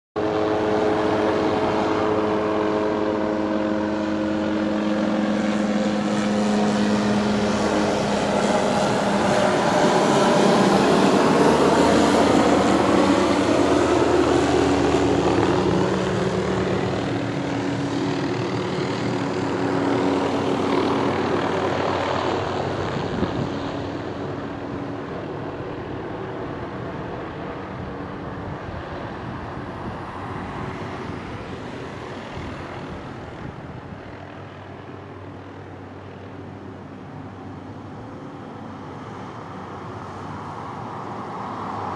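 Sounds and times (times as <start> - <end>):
helicopter engine and rotor: 0.2 - 41.9.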